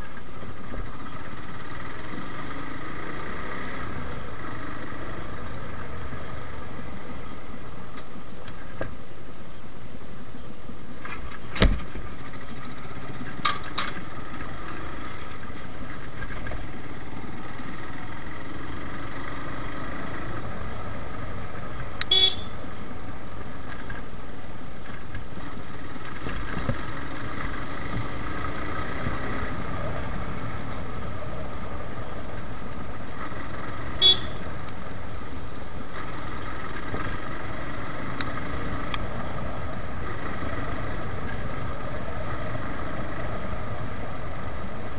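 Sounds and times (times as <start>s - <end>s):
motorcycle engine running: 0.0s - 9.7s, 10.8s - 44.9s
riding wind noise: 0.0s - 44.9s
horn toot: 22.0s - 22.6s, 33.9s - 34.5s.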